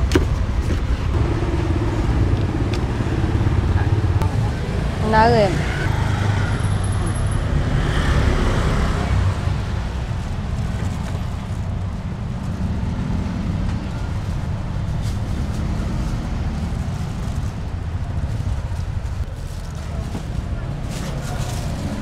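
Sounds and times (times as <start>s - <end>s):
low rumble of road traffic: 0.0s - 22.0s
faint background voices: 19.2s - 22.0s.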